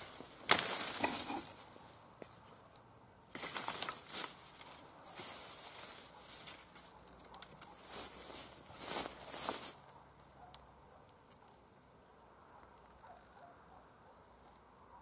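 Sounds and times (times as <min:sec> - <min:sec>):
brush rustling: 0:00.0 - 0:10.3
stems crackling: 0:00.0 - 0:13.2
brush hook chopping canes: 0:00.4 - 0:01.4.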